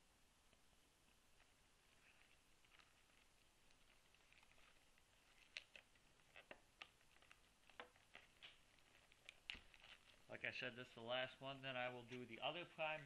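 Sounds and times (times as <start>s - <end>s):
foil wrapper crinkling: 1.4s - 10.4s.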